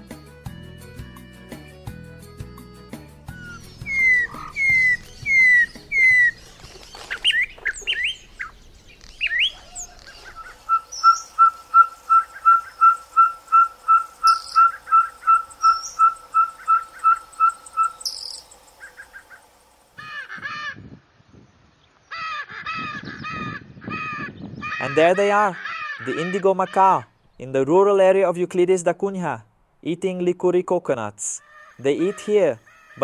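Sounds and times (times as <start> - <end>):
songbird whistling: 3.3 - 19.4
macaws squawking: 3.3 - 20.8, 22.1 - 27.1, 31.4 - 33.0
owl tooting: 3.3 - 20.8, 22.1 - 27.1, 31.4 - 33.0.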